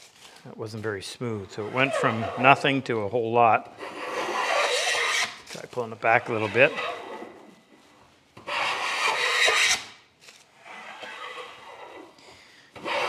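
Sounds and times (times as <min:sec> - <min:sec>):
hand plane shaving wood: 0:01.6 - 0:02.8, 0:03.8 - 0:07.5, 0:08.4 - 0:09.9, 0:10.7 - 0:12.2, 0:12.8 - 0:13.0.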